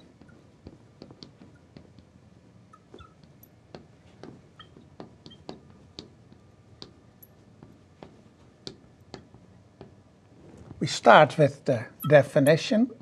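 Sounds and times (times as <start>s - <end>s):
marker pen tapping and squeaking: 0.0s - 10.0s.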